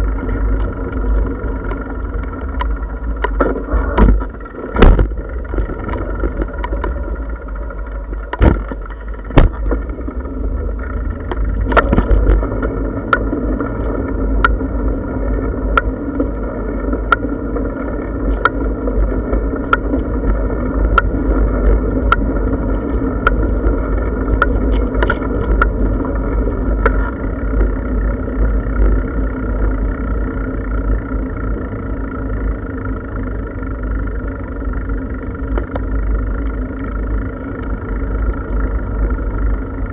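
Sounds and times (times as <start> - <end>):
tyres rumbling on path: 0.0 - 39.9
bike knocking over bumps: 3.2 - 7.0, 8.2 - 10.2.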